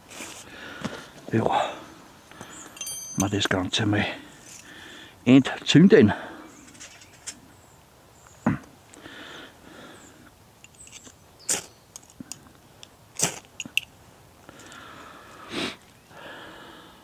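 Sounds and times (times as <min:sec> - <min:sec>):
soft breathing: 0:04.1 - 0:05.2, 0:08.9 - 0:10.3, 0:14.4 - 0:17.0.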